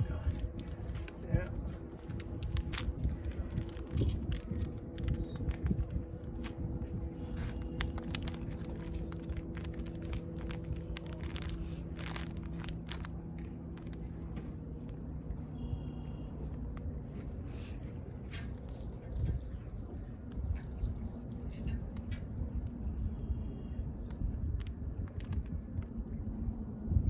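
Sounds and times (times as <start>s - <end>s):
plastic packaging crinkling and clicking: 0.0s - 15.1s, 24.1s - 26.0s
steady low hum: 0.0s - 27.0s
wind on microphone: 0.0s - 27.0s.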